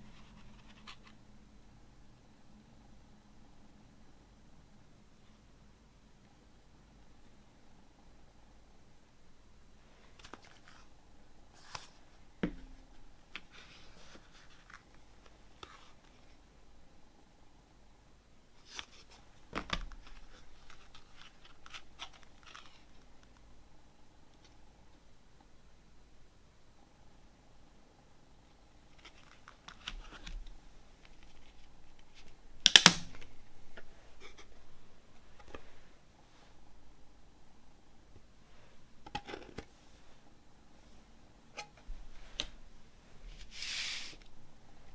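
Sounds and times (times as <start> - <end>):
plastic cd case clicks and rustles: 18.7 - 23.3, 39.0 - 39.7.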